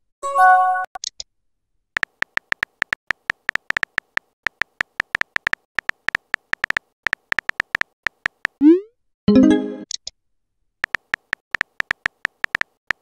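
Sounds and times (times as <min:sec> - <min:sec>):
electronic typing clicks: 0:02.0 - 0:08.8, 0:10.8 - 0:13.0.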